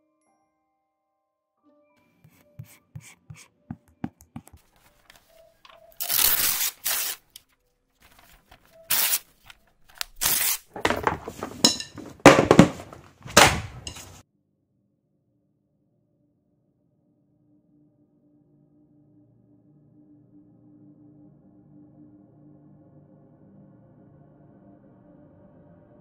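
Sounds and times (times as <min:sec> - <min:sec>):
harsh tearing and crunching: 0:06.0 - 0:07.4, 0:08.4 - 0:10.8.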